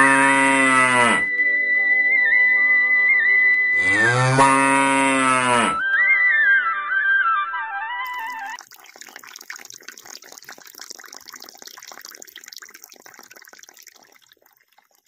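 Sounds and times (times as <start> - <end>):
running water splashing: 8.1 - 15.0.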